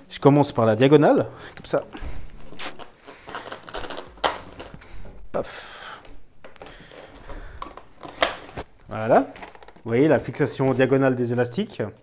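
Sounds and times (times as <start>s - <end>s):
rustling handling noise: 1.4s - 11.7s
rubber bands snapping: 2.6s - 4.9s, 6.0s - 8.7s.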